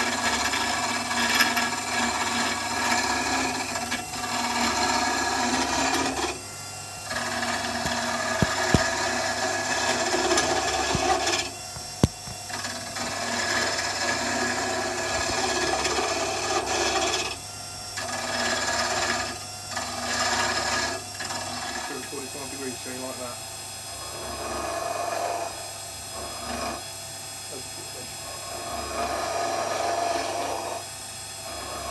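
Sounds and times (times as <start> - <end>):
lathe tool cutting wood: 0.0 - 31.9
low motor hum: 0.3 - 17.4.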